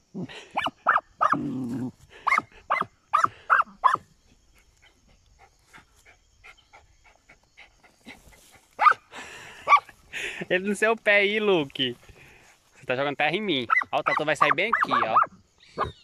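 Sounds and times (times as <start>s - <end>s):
young dogs yapping: 0.5s - 10.0s, 13.6s - 16.0s
paws digging in dry soil: 0.6s - 9.0s.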